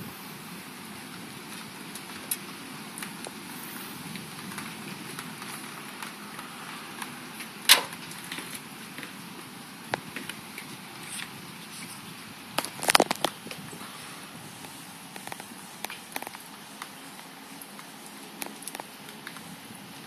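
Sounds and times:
steady outdoor hiss: 0.0s - 20.0s
sharp clicks and pops: 12.5s - 13.7s, 14.6s - 16.9s.

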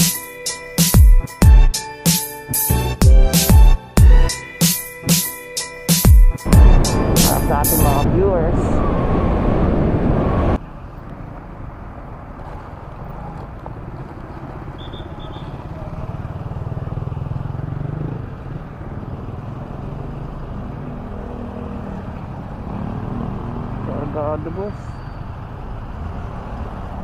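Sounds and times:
background music: 0.0s - 8.3s
road noise: 0.0s - 27.0s
scooter engine: 12.4s - 23.9s.

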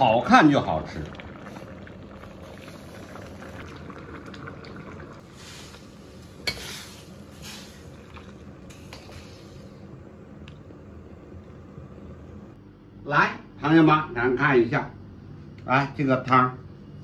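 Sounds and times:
soup pouring into bowls: 0.0s - 9.2s
soup boiling and bubbling: 0.0s - 12.5s.

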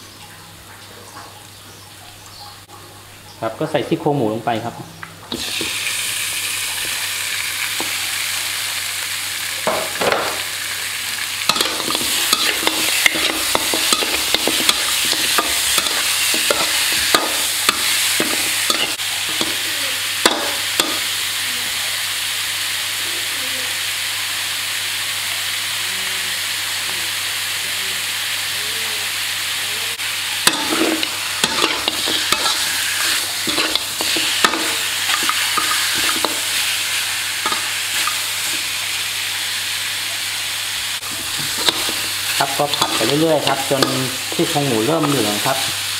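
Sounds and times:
meat sizzling in hot oil: 5.2s - 45.9s
spatula scraping a pan: 11.5s - 19.7s, 30.4s - 36.8s, 41.0s - 45.2s.

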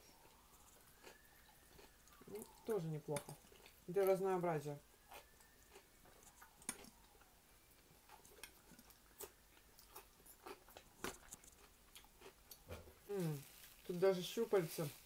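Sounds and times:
chewing and eating: 0.0s - 4.2s, 4.9s - 13.9s.

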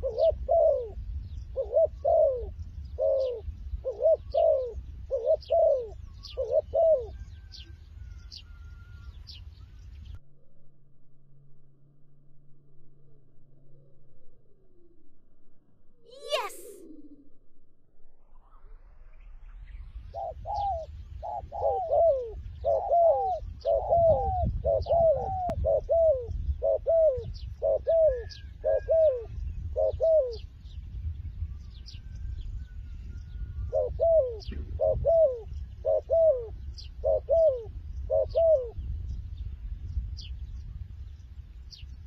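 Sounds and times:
dove cooing: 0.0s - 7.6s, 20.1s - 30.4s, 33.6s - 38.8s.

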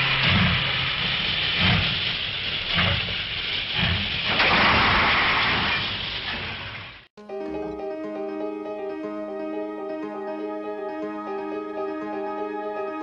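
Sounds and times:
locomotive chuffs: 0.0s - 7.1s
steam hissing: 0.0s - 7.1s.

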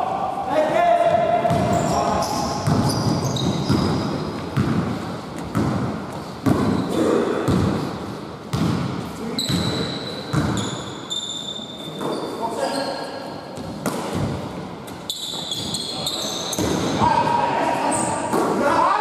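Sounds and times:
basketball bouncing on wooden floor: 1.1s - 6.9s, 7.5s - 7.8s, 8.5s - 10.7s
sneaker squeaks: 1.4s - 4.8s, 6.3s - 7.2s, 9.3s - 14.2s, 14.9s - 17.2s, 17.8s - 18.4s.

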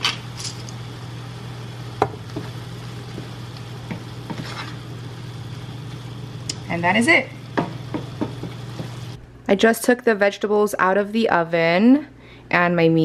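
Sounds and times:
steady low hum: 0.0s - 12.5s
meat sizzling in a pan: 0.8s - 6.5s, 7.4s - 9.2s
spoon knocking pan: 2.0s - 4.5s, 7.5s - 9.1s.

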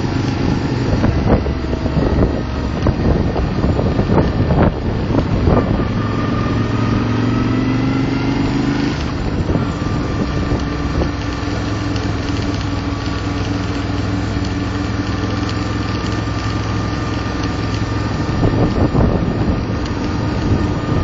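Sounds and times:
road noise: 0.0s - 21.0s
vehicle engine running: 0.0s - 21.0s.

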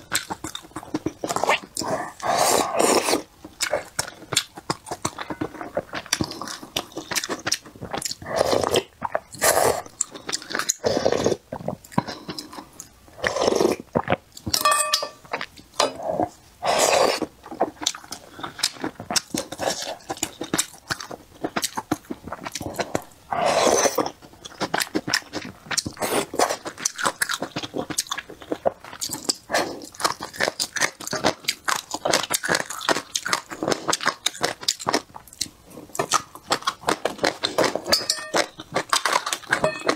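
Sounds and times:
wet chewing with mouth clicks: 0.0s - 39.9s
slurping soup: 0.4s - 4.1s, 7.8s - 14.2s, 15.8s - 20.2s, 22.5s - 24.2s.

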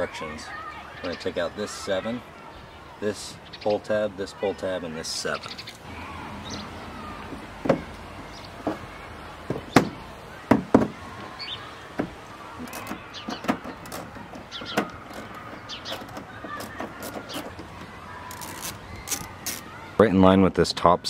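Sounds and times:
hand tools clicking and knocking: 12.0s - 19.6s.

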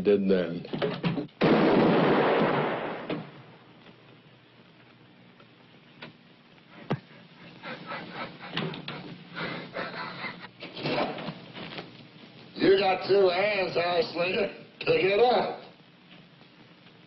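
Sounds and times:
loud bang: 1.4s - 3.6s.

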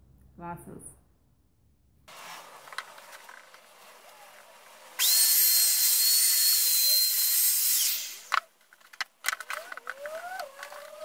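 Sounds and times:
electric router high whine: 2.1s - 8.4s.

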